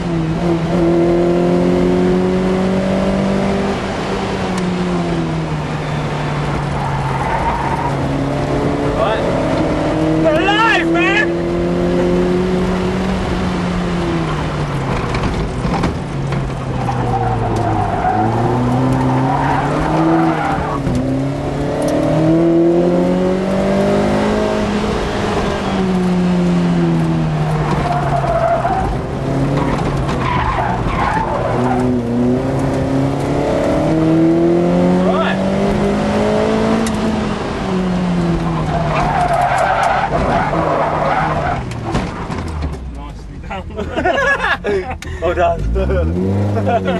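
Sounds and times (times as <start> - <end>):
car engine revving through gears: 0.0 - 43.1, 44.1 - 46.9
tyres squealing: 16.6 - 20.8, 29.5 - 32.1.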